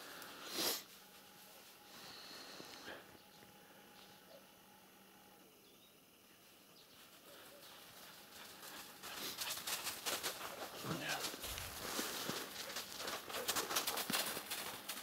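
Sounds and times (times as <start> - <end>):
footsteps crunching in snow: 7.0 - 15.0.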